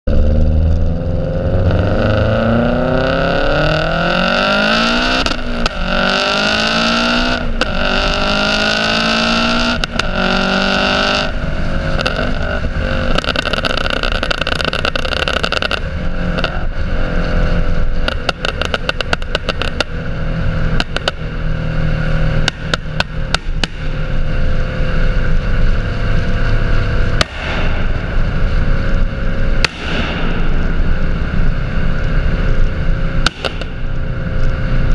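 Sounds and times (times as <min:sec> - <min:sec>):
car engine pulling hard: 0:00.1 - 0:34.9
exhaust pops and crackles: 0:05.0 - 0:06.4, 0:09.5 - 0:16.7, 0:17.8 - 0:21.4, 0:22.4 - 0:24.2, 0:32.6 - 0:34.6.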